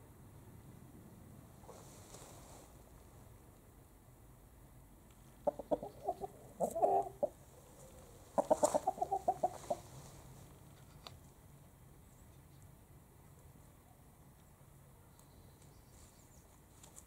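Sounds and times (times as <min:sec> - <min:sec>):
chicken clucking: 0:05.4 - 0:10.0.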